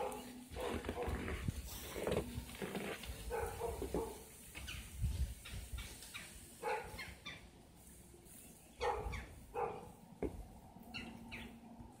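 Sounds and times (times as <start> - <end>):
footsteps crunching in snow: 0.0 - 6.1.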